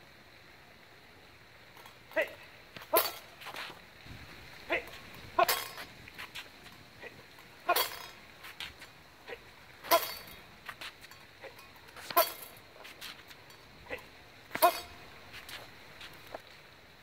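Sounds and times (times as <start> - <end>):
steel blades clinking: 1.8 - 3.5, 4.7 - 5.9, 6.6 - 8.9, 9.8 - 15.6.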